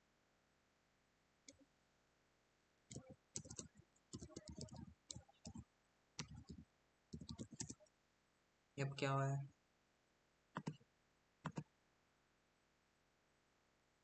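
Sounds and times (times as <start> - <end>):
keyboard key clicks: 2.9 - 5.6.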